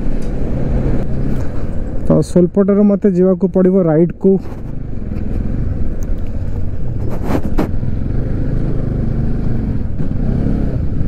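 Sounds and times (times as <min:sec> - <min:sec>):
wind and road noise: 0:00.0 - 0:11.0
motorcycle engine running: 0:04.5 - 0:11.0.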